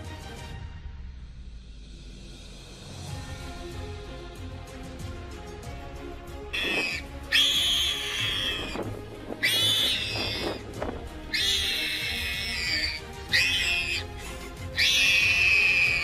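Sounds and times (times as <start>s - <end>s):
soft background music: 0.0s - 16.0s
warthog distress squeals: 6.6s - 10.7s, 11.3s - 16.0s.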